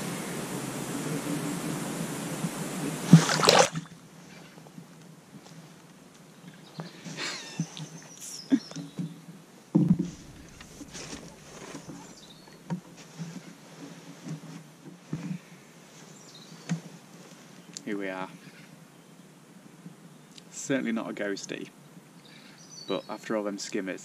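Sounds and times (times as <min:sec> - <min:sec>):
fish splashing in water: 0:03.1 - 0:04.0, 0:10.0 - 0:12.5
knocks and sloshes: 0:03.1 - 0:04.0, 0:09.9 - 0:12.5
loud rushing hiss: 0:10.0 - 0:12.5.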